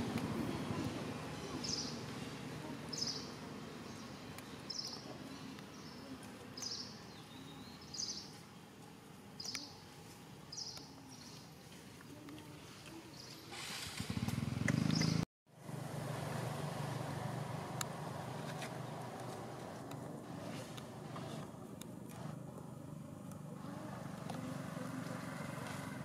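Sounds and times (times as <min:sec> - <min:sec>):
bird chirping: 0:00.8 - 0:08.4, 0:09.4 - 0:09.8, 0:14.7 - 0:15.2
low outdoor rumble: 0:14.0 - 0:26.0.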